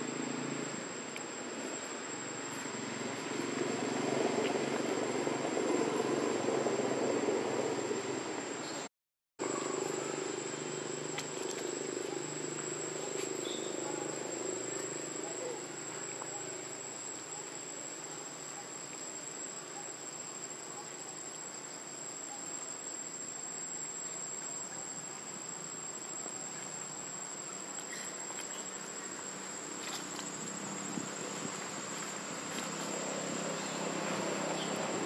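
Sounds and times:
high-pitched insect drone: 0:09.4 - 0:17.1.

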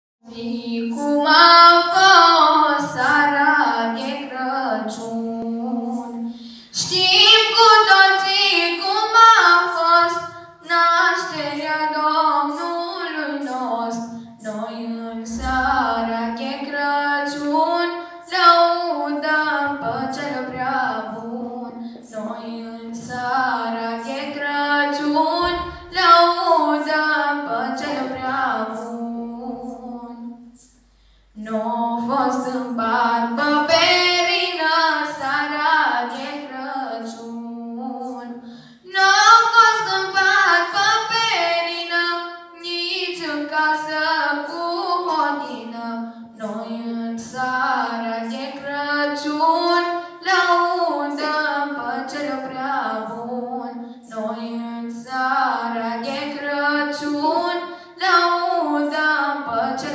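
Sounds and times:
women singing a carol: 0:31.4 - 0:40.7, 0:43.0 - 0:59.9.

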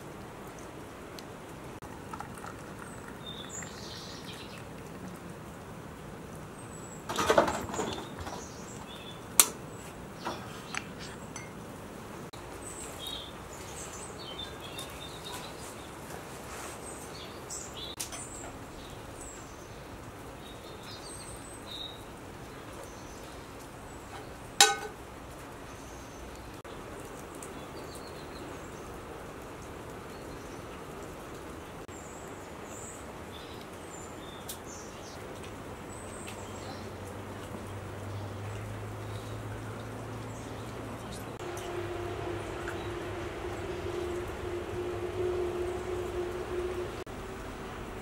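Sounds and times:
small birds chirping: 0:02.2 - 0:05.2, 0:06.4 - 0:24.6, 0:31.9 - 0:41.7
tea things clattering: 0:24.6 - 0:25.0.

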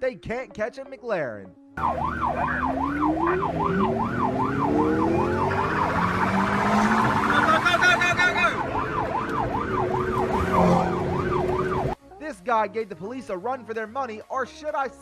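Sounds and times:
car engine accelerating: 0:01.8 - 0:12.0
police siren yelping: 0:01.8 - 0:12.0.

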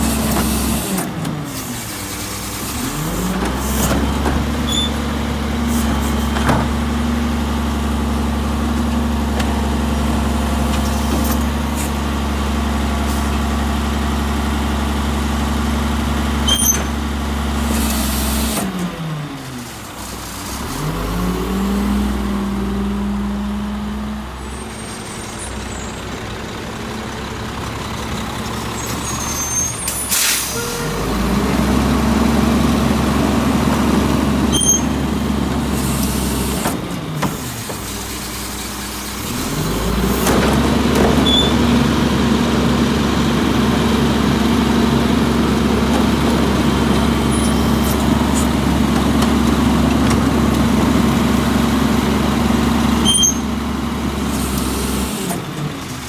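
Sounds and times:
diesel engine running: 0:00.0 - 0:56.0
air brake hisses: 0:28.9 - 0:30.9.

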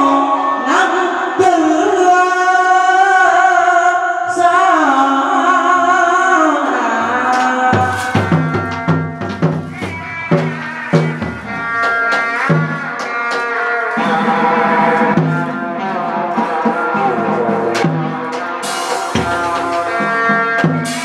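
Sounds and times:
drum strikes: 0:07.2 - 0:21.0.

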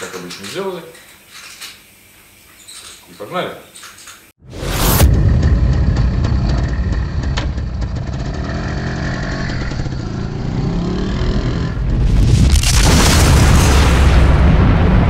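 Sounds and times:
loud rushing burst: 0:04.4 - 0:15.0
motorcycle engine humming: 0:04.8 - 0:12.0.

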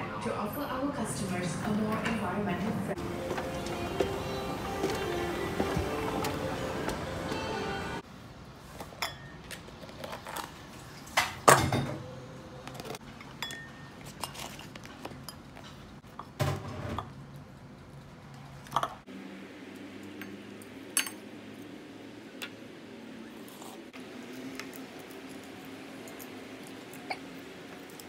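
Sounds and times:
ceramic dishes clinking on table: 0:13.4 - 0:13.9.

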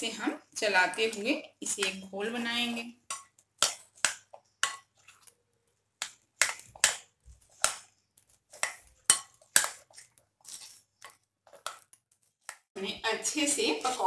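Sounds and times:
spoon scraping glass bowl: 0:08.5 - 0:12.0.

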